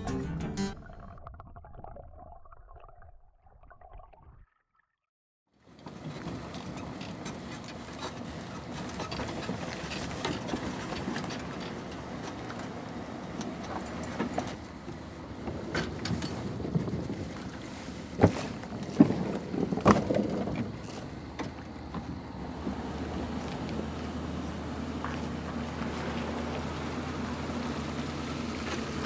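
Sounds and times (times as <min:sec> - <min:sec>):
metal clanks from boat and trailer: 0:05.6 - 0:23.0.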